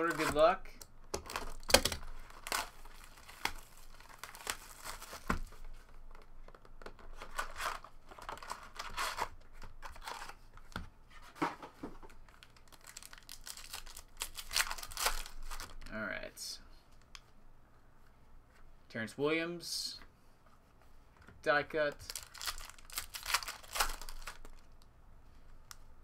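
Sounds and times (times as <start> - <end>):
foil packs crinkling and tearing: 1.2 - 5.3, 12.3 - 15.9, 22.0 - 24.8
shrink wrap being slit and pulled: 22.1 - 24.6.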